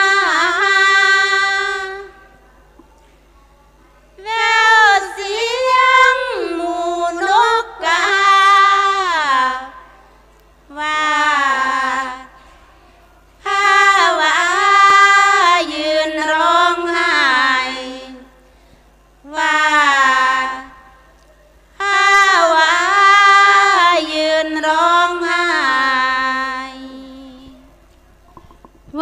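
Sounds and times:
woman chanting unaccompanied: 0.0 - 2.4, 4.2 - 10.0, 10.7 - 12.4, 13.4 - 18.4, 19.2 - 21.0, 21.8 - 27.7.

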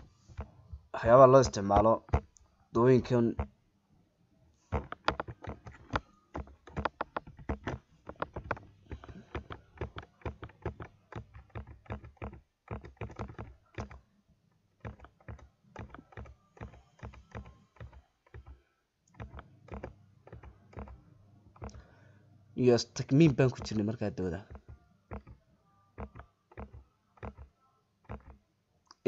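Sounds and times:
keyboard typing clicks: 4.7 - 14.0, 14.8 - 22.0, 23.0 - 25.4, 26.0 - 29.0.

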